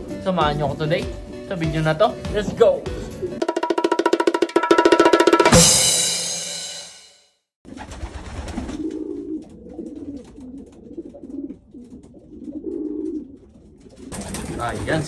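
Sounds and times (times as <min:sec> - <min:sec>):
pigeons cooing: 0:02.8 - 0:03.4, 0:07.8 - 0:15.0.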